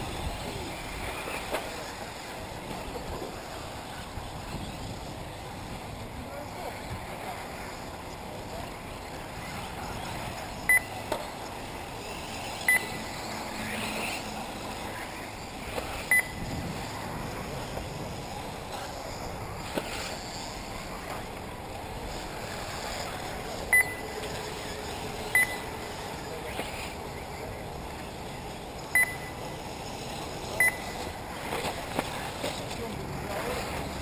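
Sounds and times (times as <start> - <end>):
outdoor background hiss: 0.0 - 34.0
short electronic beeps: 10.7 - 11.0, 12.7 - 13.0, 16.1 - 16.4, 23.7 - 24.0, 25.3 - 25.7, 28.9 - 29.4, 30.6 - 31.0.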